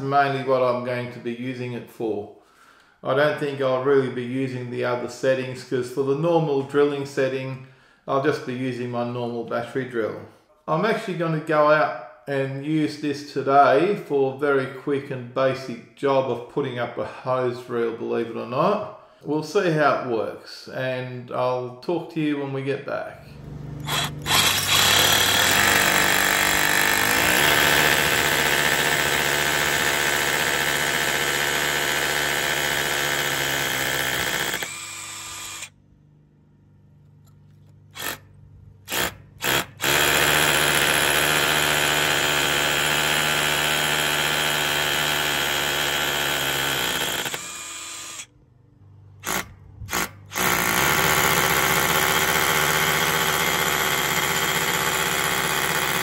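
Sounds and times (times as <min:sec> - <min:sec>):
hammer drill boring into brick: 0:23.8 - 0:35.7, 0:37.9 - 0:38.2, 0:38.9 - 0:48.3, 0:49.2 - 0:56.0.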